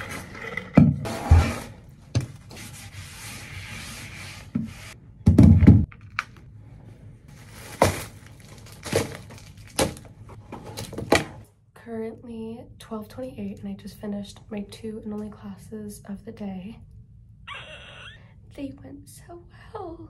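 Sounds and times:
rubbing and rustling: 1.1s - 5.0s.

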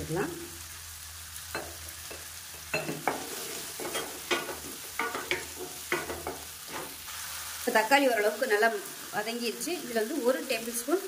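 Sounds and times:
frying sizzle: 0.0s - 11.0s
wooden spatula scraping a pan: 3.0s - 7.4s.

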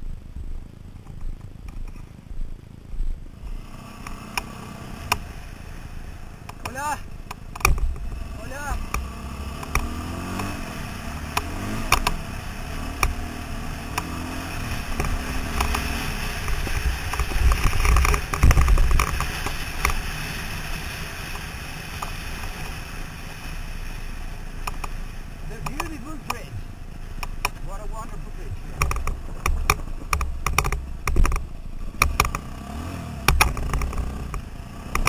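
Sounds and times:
dirt bike engine running: 0.0s - 35.0s
knocks and rattles from bumps: 28.7s - 32.4s.

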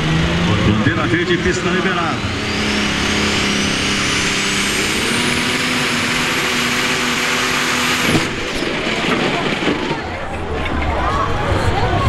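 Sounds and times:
tractor engine running flat out: 0.0s - 12.0s
engine blowing apart bang: 3.6s - 10.9s.

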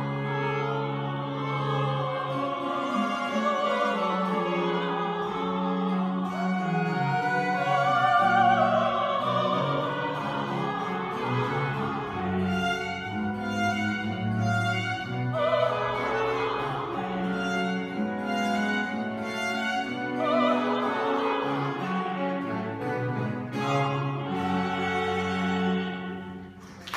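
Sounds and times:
string ensemble: 0.0s - 26.9s
woman singing operatically: 0.7s - 12.5s, 15.3s - 17.7s.

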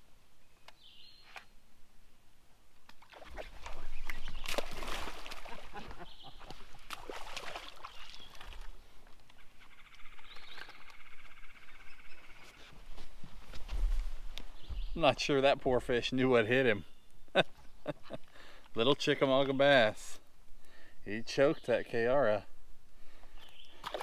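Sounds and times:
fish thrashing and splashing: 3.0s - 8.8s, 23.8s - 24.0s.

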